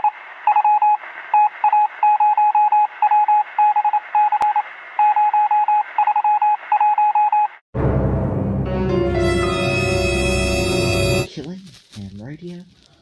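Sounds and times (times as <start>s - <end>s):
morse code beeps: 0.5s - 7.6s.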